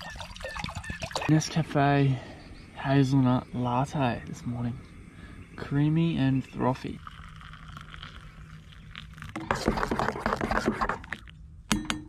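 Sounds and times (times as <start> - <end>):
water pouring into metal mug: 0.0 - 1.3, 6.6 - 10.0
spoon stirring in metal mug: 7.0 - 11.3.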